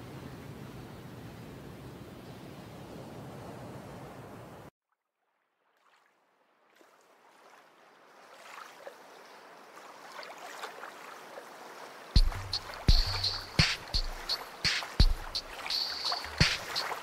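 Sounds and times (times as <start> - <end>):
soft rushing water: 5.3 - 17.0.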